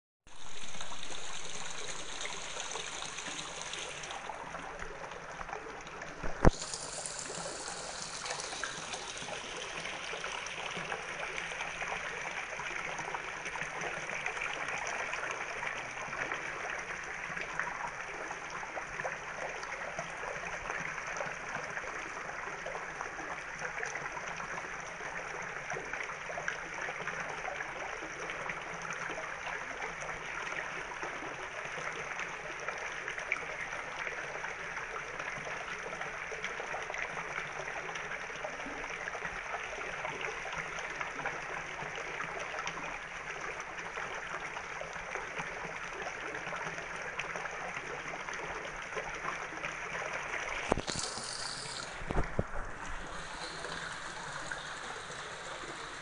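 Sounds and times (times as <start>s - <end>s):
water trickling: 0.3s - 25.8s, 40.4s - 56.0s.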